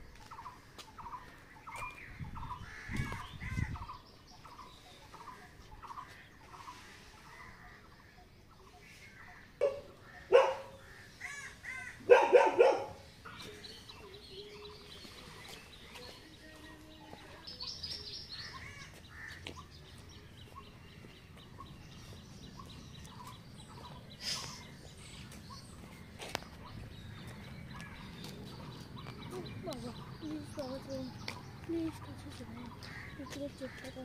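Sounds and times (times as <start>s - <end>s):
small birds chirping: 0.0s - 34.0s
dog barking: 9.6s - 10.8s, 12.1s - 13.1s.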